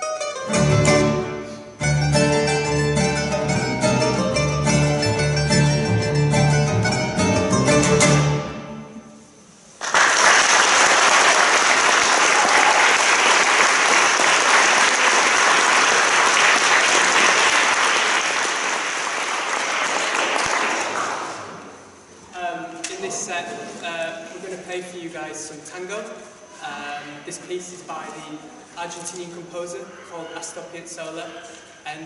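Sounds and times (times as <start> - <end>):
string trio playing: 0.0 - 9.2
audience applause: 9.8 - 21.6.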